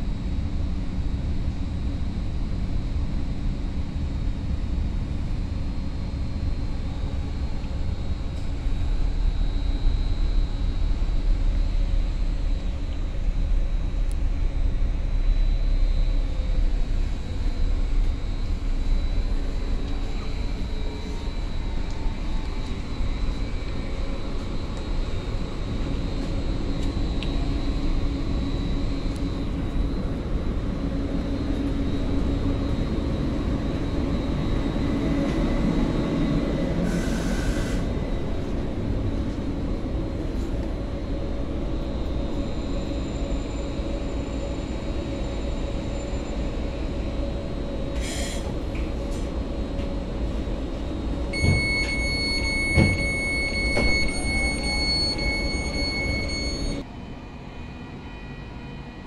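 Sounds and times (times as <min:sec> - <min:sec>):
electronic door chime: 0:51.4 - 0:56.8.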